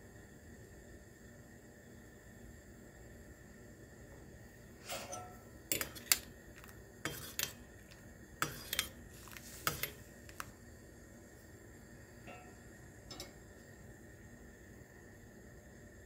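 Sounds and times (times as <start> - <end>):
spoon clinking against saucepan: 4.9 - 6.3, 7.0 - 7.6, 8.4 - 9.0.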